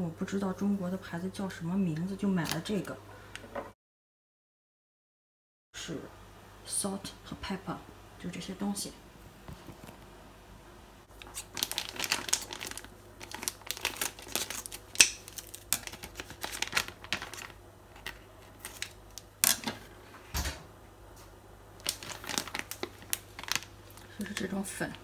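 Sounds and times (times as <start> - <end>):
plastic bag crinkling: 11.1 - 19.9, 21.8 - 25.0.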